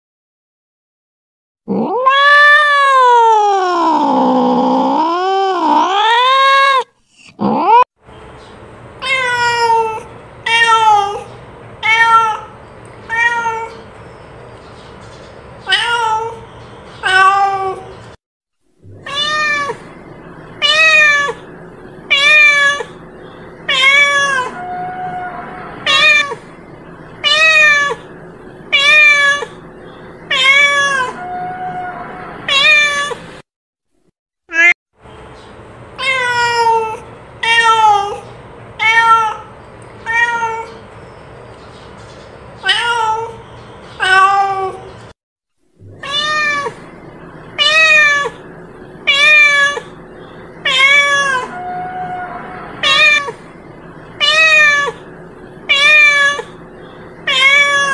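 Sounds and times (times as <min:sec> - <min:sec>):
cat meowing: 0:01.7 - 0:07.8, 0:09.0 - 0:13.8, 0:15.6 - 0:16.4, 0:17.0 - 0:17.9, 0:18.9 - 0:19.9, 0:20.6 - 0:21.4, 0:22.1 - 0:23.0, 0:23.7 - 0:26.4, 0:27.2 - 0:28.1, 0:28.7 - 0:29.6, 0:30.3 - 0:33.2, 0:34.5 - 0:34.8, 0:36.0 - 0:38.2, 0:38.8 - 0:40.8, 0:42.6 - 0:43.4, 0:44.0 - 0:44.9, 0:45.9 - 0:46.9, 0:47.6 - 0:50.0, 0:50.6 - 0:53.5, 0:54.2 - 0:56.6, 0:57.2 - 0:57.9.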